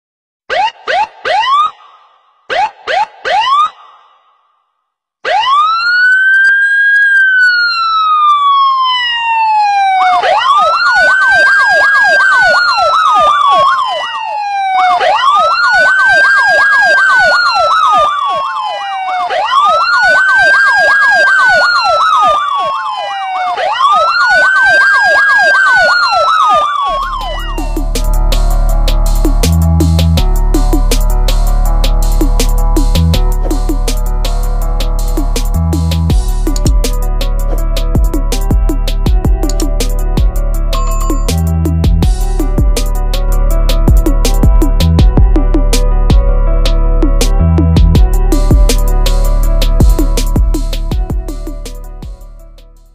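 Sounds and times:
women imitating a siren: 0:08.9 - 0:28.3
electronic music with a beat: 0:26.9 - 0:52.9.

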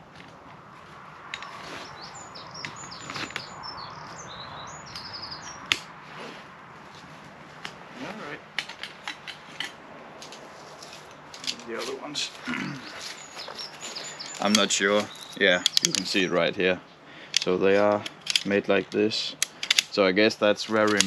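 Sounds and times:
tent fabric rustling: 0:00.0 - 0:03.5, 0:06.0 - 0:08.4
small bird chirping: 0:01.3 - 0:05.8, 0:10.8 - 0:17.0
sharp clicks: 0:14.0 - 0:16.2, 0:19.3 - 0:20.0, 0:20.8 - 0:21.0.

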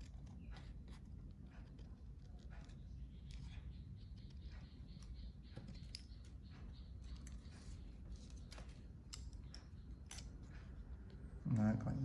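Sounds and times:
scissors cutting paper: 0:08.2 - 0:10.7.

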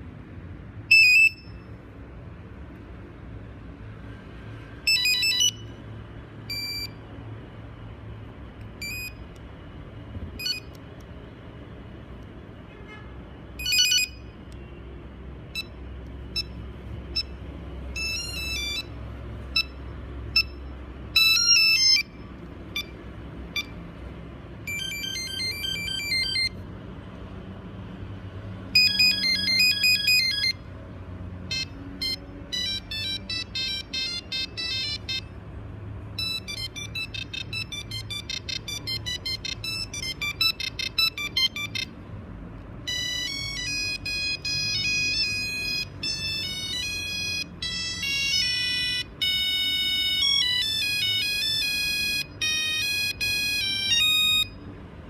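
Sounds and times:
phone ringtone beeps: 0:00.9 - 0:01.8, 0:04.8 - 0:05.8, 0:06.4 - 0:07.0, 0:08.8 - 0:09.3, 0:10.4 - 0:10.8, 0:13.6 - 0:14.3, 0:15.5 - 0:23.8, 0:24.6 - 0:26.6, 0:28.8 - 0:30.7, 0:31.5 - 0:35.4, 0:36.1 - 0:42.0, 0:42.8 - 0:54.7.

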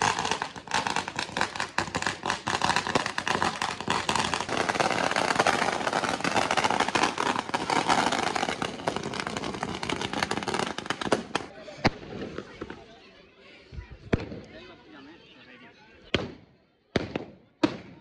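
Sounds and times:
firecrackers crackling: 0:00.0 - 0:12.9.

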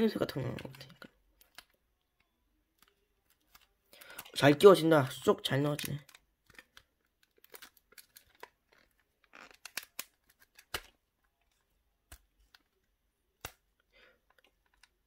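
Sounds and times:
plastic toy parts clicking: 0:00.3 - 0:04.4, 0:05.2 - 0:15.0
plastic rubbing: 0:05.8 - 0:13.6.

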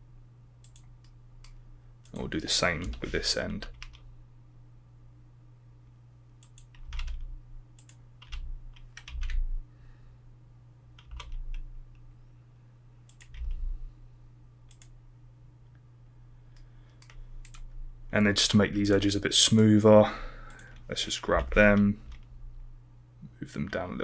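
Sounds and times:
low electrical hum: 0:00.0 - 0:24.0
keyboard keys and mouse clicking: 0:00.6 - 0:04.0, 0:06.4 - 0:09.4, 0:11.0 - 0:12.0, 0:13.1 - 0:13.6, 0:14.7 - 0:14.9, 0:16.9 - 0:17.7.

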